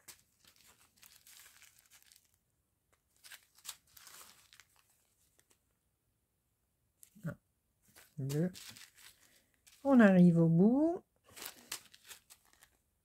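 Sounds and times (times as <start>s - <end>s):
plastic bags crinkling: 0.0s - 2.4s, 3.1s - 5.6s, 7.9s - 9.9s, 11.3s - 12.8s.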